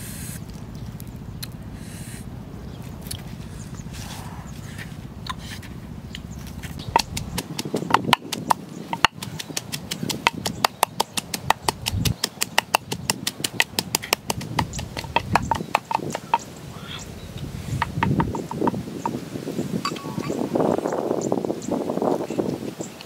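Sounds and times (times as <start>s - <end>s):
pestle pounding in wooden mortar: 6.8s - 16.5s, 17.7s - 19.2s.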